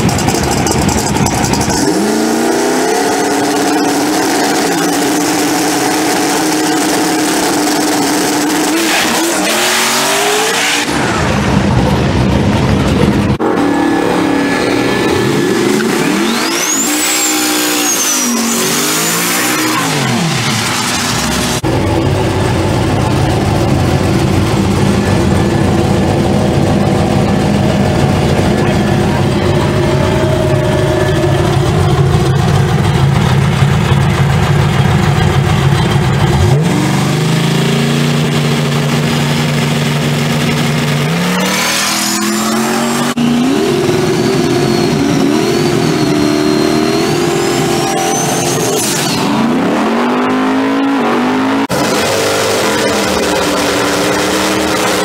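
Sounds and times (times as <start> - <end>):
racing car engines revving: 0.0 - 55.0
deep steady engine note: 9.9 - 17.1, 21.2 - 48.6.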